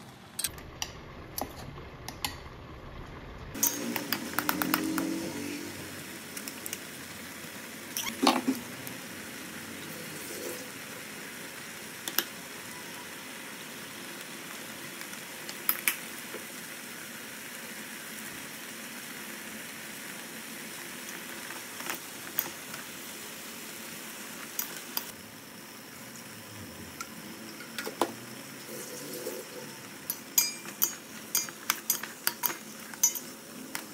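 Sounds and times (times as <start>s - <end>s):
metal spoon clinking on pan: 30.1s - 33.8s.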